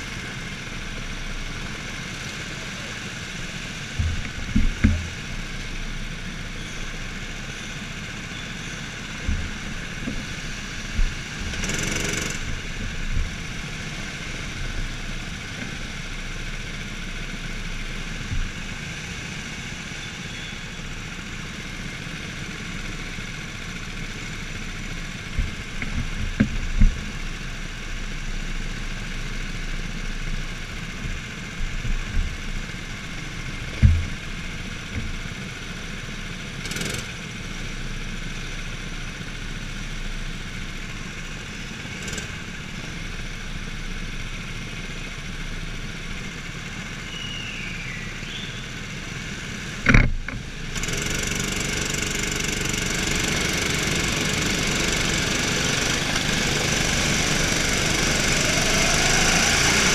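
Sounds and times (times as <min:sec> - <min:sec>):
kart engines running: 0:00.0 - 0:59.9
loud thump: 0:04.0 - 0:05.2, 0:33.8 - 0:34.3
sharp knocks: 0:04.0 - 0:05.4, 0:33.6 - 0:35.2.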